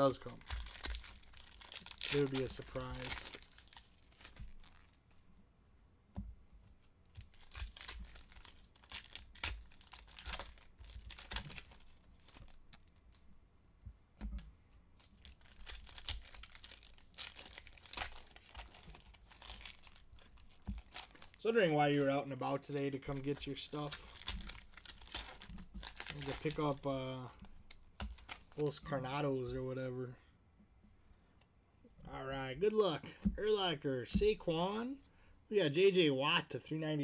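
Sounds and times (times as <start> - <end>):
foil card packs tearing: 0.0 - 5.0, 7.2 - 12.9, 15.0 - 22.0, 22.6 - 28.7
cards shuffling: 0.2 - 5.2, 6.6 - 13.2, 15.0 - 21.4, 22.0 - 28.7.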